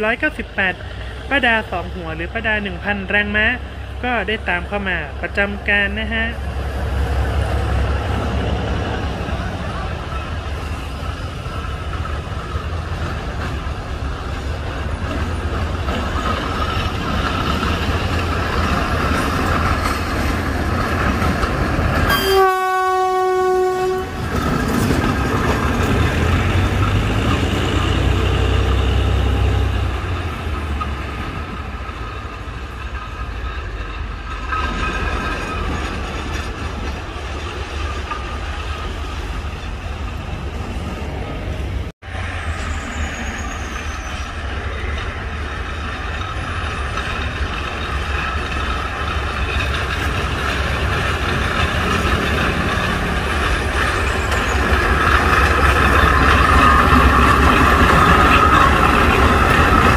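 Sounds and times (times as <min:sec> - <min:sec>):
diesel locomotive engine rumble: 0:00.0 - 0:59.9
locomotive horn blast: 0:22.1 - 0:24.2.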